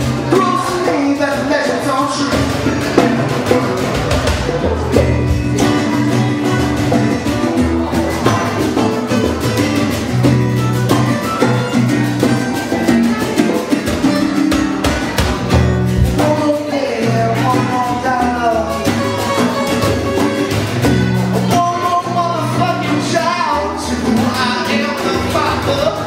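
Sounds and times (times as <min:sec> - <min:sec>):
man singing: 0:00.0 - 0:09.6, 0:16.0 - 0:20.4, 0:21.3 - 0:26.0
hand-drum percussion: 0:00.0 - 0:26.0
strummed acoustic guitar: 0:00.0 - 0:26.0.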